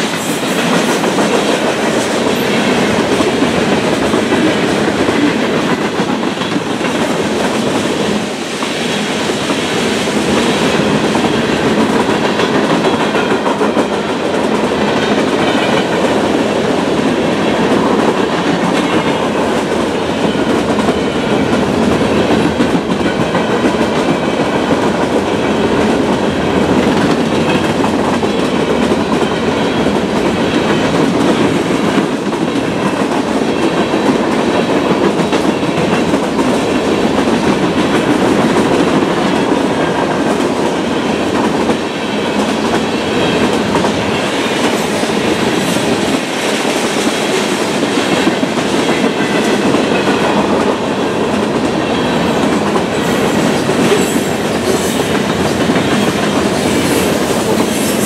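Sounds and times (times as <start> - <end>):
freight train wheels on rails: 0.0 - 58.0.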